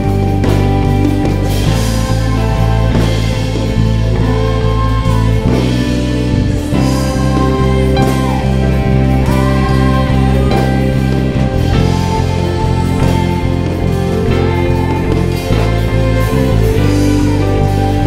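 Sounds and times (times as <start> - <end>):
bass guitar: 0.0 - 18.0
electric guitar: 0.0 - 18.0
people singing: 0.0 - 18.0
steady drum beat: 0.0 - 18.0.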